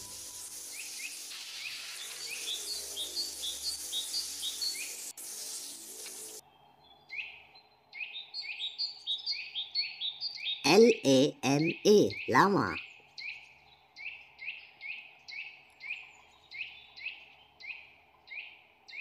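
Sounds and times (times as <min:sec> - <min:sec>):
steady hiss: 0:00.0 - 0:06.4
small birds chirping: 0:00.0 - 0:19.0.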